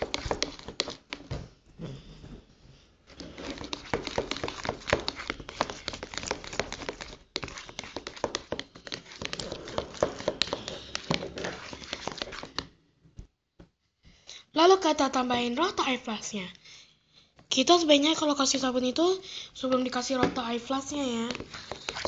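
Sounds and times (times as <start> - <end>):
spatula stirring wet slime: 0.0 - 1.3, 3.1 - 12.8, 19.6 - 22.0.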